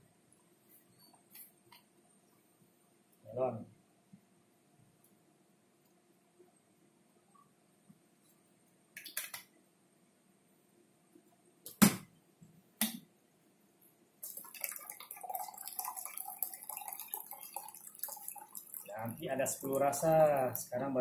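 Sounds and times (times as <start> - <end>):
drink pouring into cup: 14.2 - 20.7.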